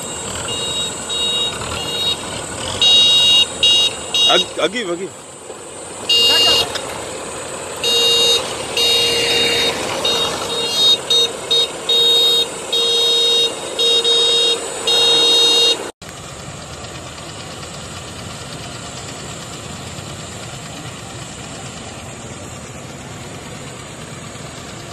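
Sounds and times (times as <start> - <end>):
vehicle horn tooting: 0.0 - 5.0, 6.0 - 7.0, 7.8 - 16.0
tractor engine running: 0.0 - 24.9.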